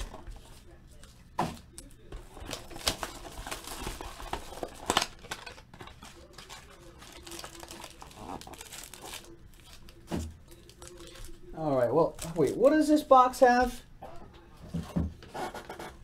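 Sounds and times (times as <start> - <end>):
plastic wrapping crinkling and tearing: 0.0 - 13.0
packs rustling: 1.6 - 13.0.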